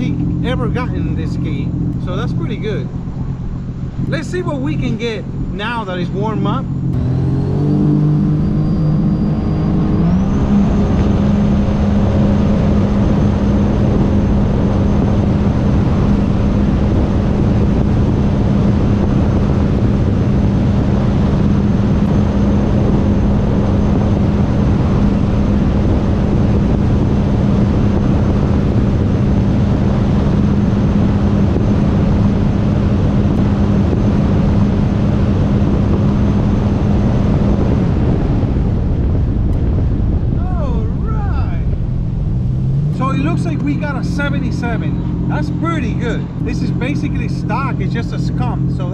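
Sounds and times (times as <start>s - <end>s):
jet ski engine at full throttle: 0.0s - 48.9s
rush of wind and water: 9.6s - 43.8s.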